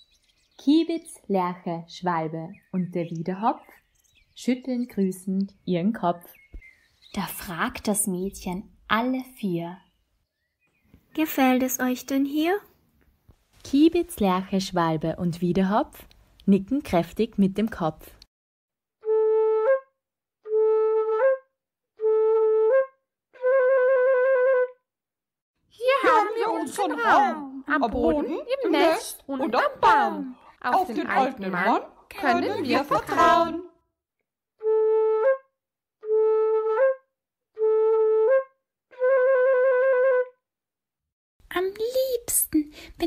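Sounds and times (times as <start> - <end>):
flute-like wind instrument notes: 19.0 - 24.8, 34.6 - 40.4.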